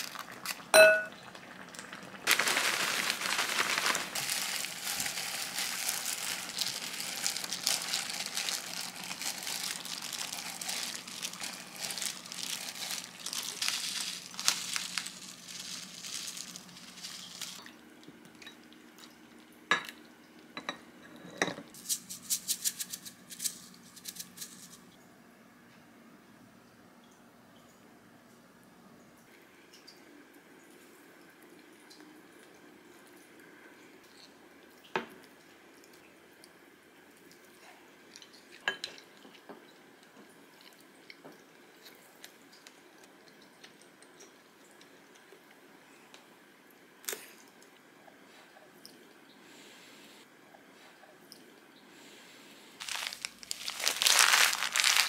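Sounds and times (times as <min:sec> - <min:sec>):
plastic gloves crinkling: 0:00.0 - 0:00.7, 0:01.6 - 0:17.7, 0:21.7 - 0:24.9, 0:52.8 - 0:55.0
seeds rattling from a jar: 0:02.2 - 0:17.6, 0:21.8 - 0:24.8, 0:52.8 - 0:55.0.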